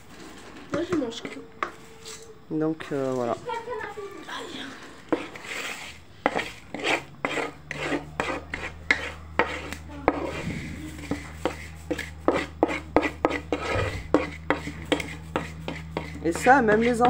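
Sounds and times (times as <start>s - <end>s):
wooden spoon scraping a board: 4.7s - 17.0s
low steady hum: 6.0s - 17.0s.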